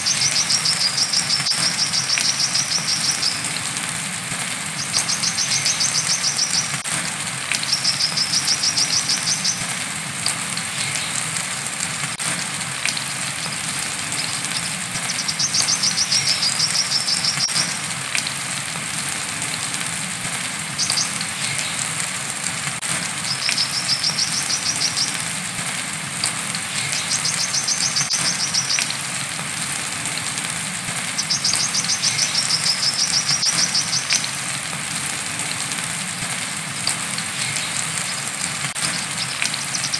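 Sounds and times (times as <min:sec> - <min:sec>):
bird chattering trill song: 0:00.0 - 0:03.6, 0:04.7 - 0:06.8, 0:07.6 - 0:09.7, 0:13.0 - 0:17.7, 0:20.8 - 0:21.8, 0:23.2 - 0:25.2, 0:26.7 - 0:29.0, 0:31.2 - 0:34.4, 0:37.4 - 0:39.9
rain hiss: 0:00.0 - 0:39.9.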